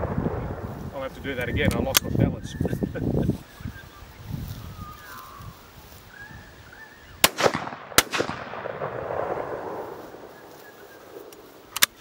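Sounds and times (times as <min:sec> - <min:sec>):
shotgun shots echoing: 0:07.2 - 0:11.9.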